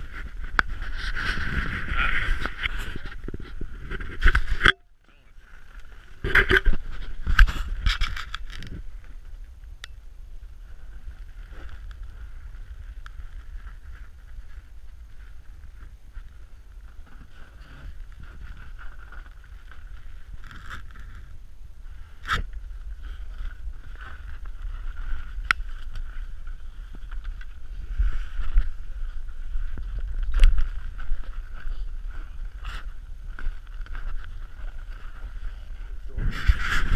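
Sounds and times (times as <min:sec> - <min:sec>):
wind buffeting rumble: 0:00.0 - 0:04.6, 0:05.8 - 0:36.9
camera handling noise: 0:06.2 - 0:08.8.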